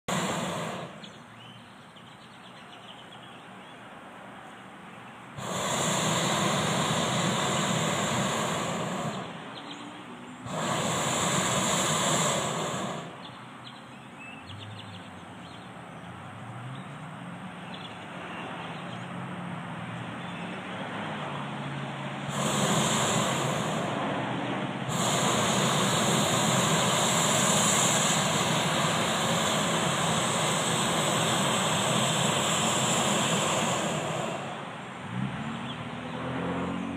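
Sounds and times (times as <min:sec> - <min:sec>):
propane burner blasts: 0:00.0 - 0:01.6, 0:05.3 - 0:13.5, 0:22.2 - 0:36.3.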